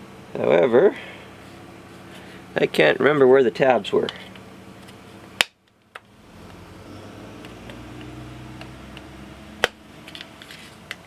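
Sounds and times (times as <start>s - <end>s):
handling and scraping noise: 10.0s - 11.0s.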